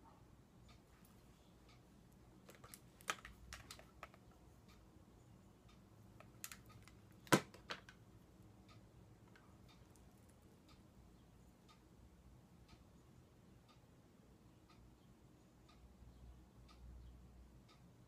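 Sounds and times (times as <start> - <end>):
makeup items clicking and tapping: 2.4 - 4.4, 6.2 - 8.0.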